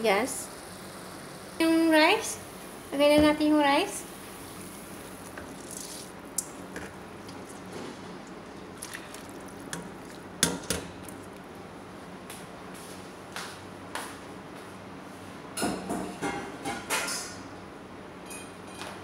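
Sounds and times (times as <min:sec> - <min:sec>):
boiling water bubbling: 0:00.0 - 0:11.7.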